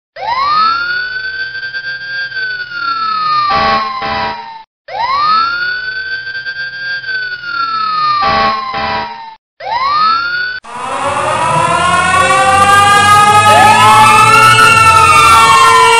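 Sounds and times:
police siren wailing: 9.6s - 15.9s.

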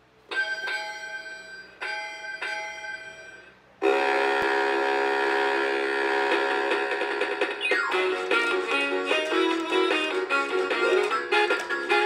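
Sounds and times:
toy song music: 6.2s - 12.0s.

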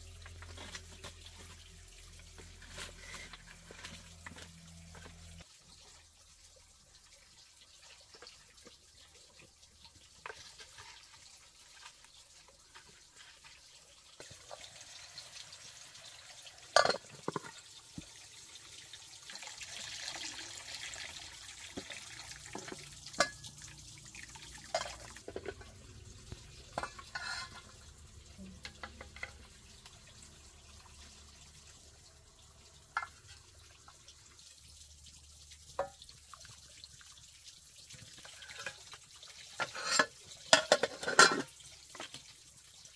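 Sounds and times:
metal pot and utensils clinking: 0.0s - 5.5s, 7.8s - 18.2s, 19.2s - 31.0s, 32.9s - 33.5s, 35.7s - 36.1s, 37.9s - 42.4s
liquid stirred and poured: 0.0s - 42.9s.

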